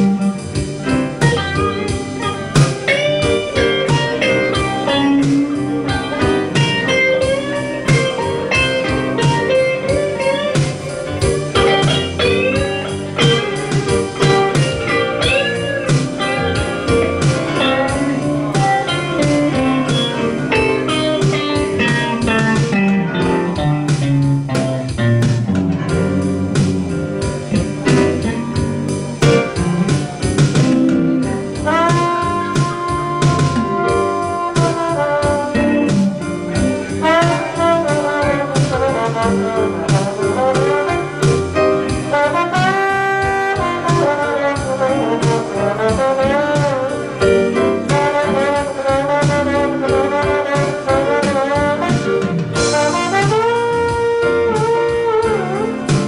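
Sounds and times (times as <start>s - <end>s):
electric guitar solo with bent notes: 0.0s - 56.0s
live blues band playing: 0.0s - 56.0s
trombone long held note: 37.0s - 55.8s.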